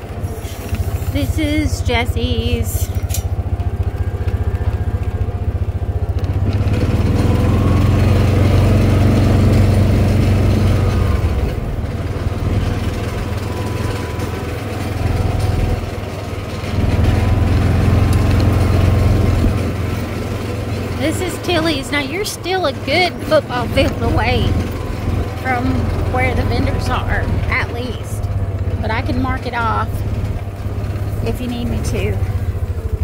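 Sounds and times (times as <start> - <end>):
small vehicle engine running: 0.0 - 33.0.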